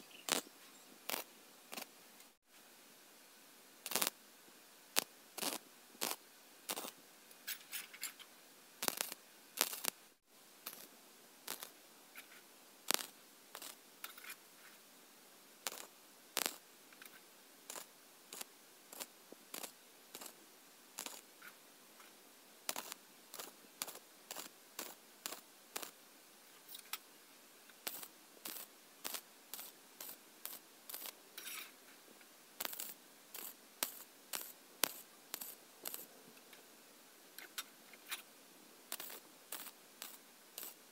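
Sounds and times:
welding arc bursts: 0.2s - 1.9s, 3.8s - 4.2s, 5.0s - 7.0s, 8.8s - 10.0s, 10.6s - 11.8s, 12.9s - 13.8s, 15.6s - 16.6s, 17.7s - 20.4s, 21.0s - 21.3s, 22.7s - 26.0s, 27.8s - 31.2s, 32.6s - 36.1s, 38.9s - 40.9s.

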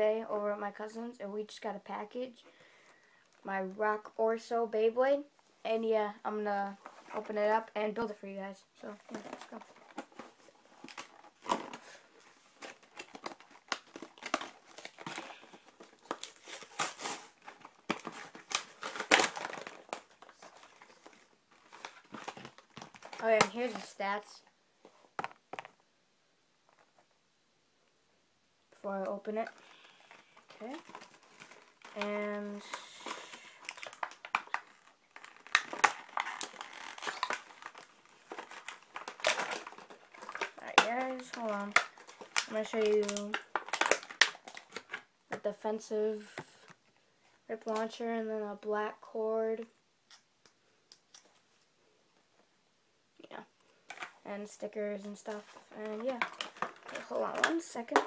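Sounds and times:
plastic packaging crinkling: 8.9s - 24.3s, 29.3s - 45.4s, 53.7s - 58.0s.

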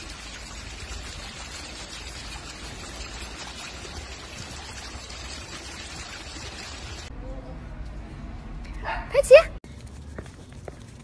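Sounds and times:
running water: 0.0s - 7.1s.

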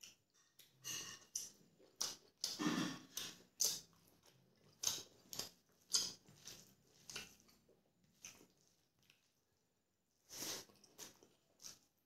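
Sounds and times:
wet chewing and smacking: 0.0s - 12.0s.

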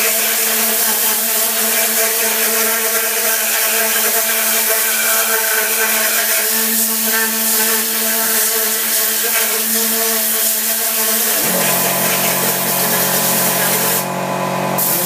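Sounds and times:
compressed air hissing: 0.2s - 14.1s, 14.8s - 15.0s
buzzing hum: 9.4s - 15.0s.

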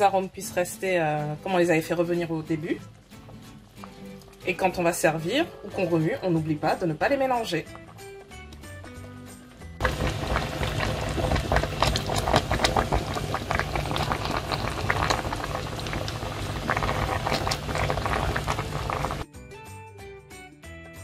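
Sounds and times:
sauce boiling and bubbling: 2.9s - 4.5s, 9.8s - 19.2s.

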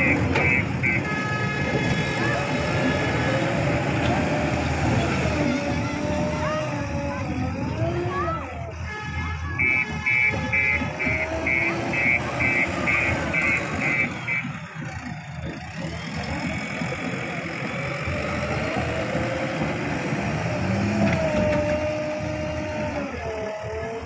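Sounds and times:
reversing alarm beeping: 0.0s - 2.1s, 9.6s - 17.3s
diesel engine under load: 0.0s - 24.0s.

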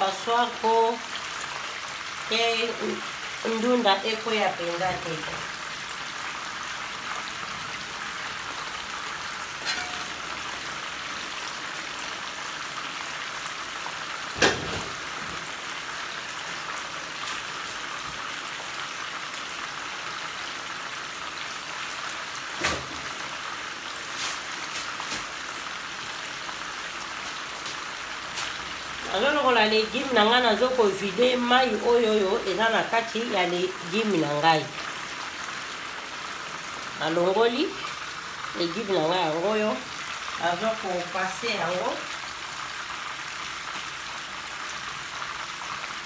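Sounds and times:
food sizzling in frying pan: 0.0s - 46.0s.

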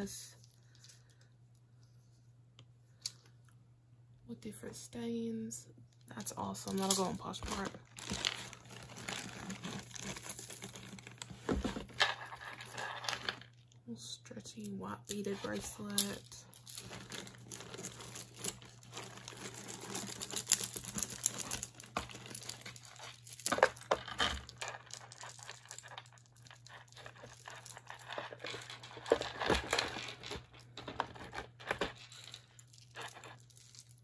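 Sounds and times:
wrapping crinkling: 6.7s - 13.7s, 15.4s - 34.0s.

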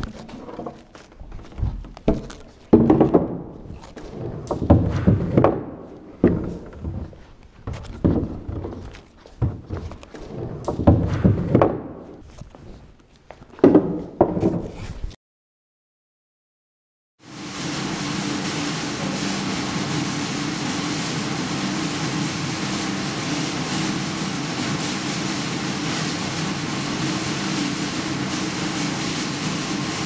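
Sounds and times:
camera handling thumps and scuffs: 0.0s - 4.2s.

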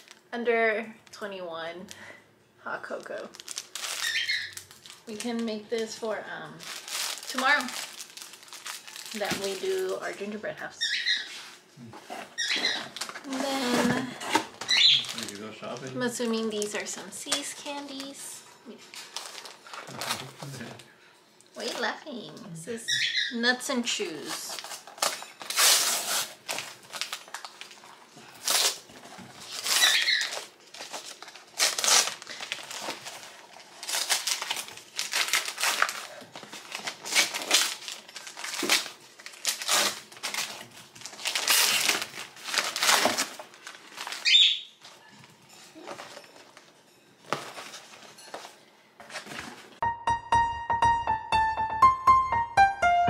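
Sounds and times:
wrapping paper tearing and rustling: 0.0s - 0.2s, 2.9s - 20.9s, 23.9s - 49.8s
piano music: 49.8s - 53.0s.

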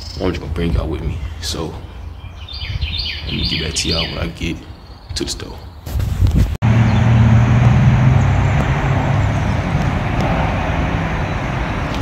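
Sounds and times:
tyre and road noise: 4.4s - 12.0s
vehicle engine humming: 6.6s - 12.0s.

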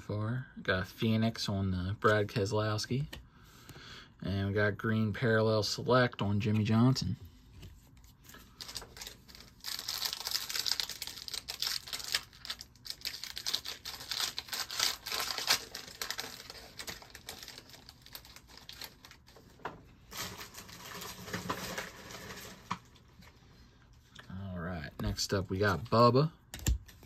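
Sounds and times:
foil wrapper crinkling and tearing: 8.4s - 23.0s.

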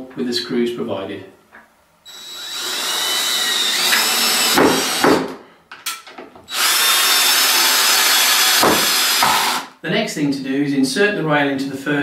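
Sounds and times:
cordless drill motor whining: 2.1s - 5.0s, 6.5s - 9.7s.

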